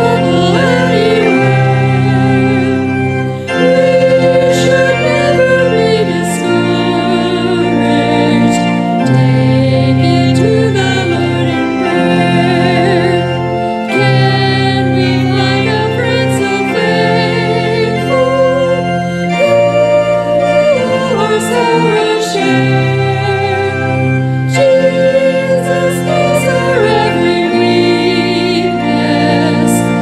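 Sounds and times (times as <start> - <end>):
organ chords: 0.0 - 30.0
two women singing a hymn: 0.0 - 30.0.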